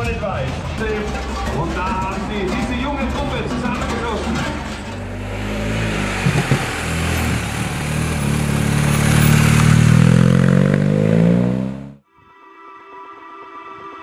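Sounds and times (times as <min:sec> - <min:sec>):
motorcycle engine accelerating: 0:00.8 - 0:12.0
soft music: 0:12.0 - 0:14.0.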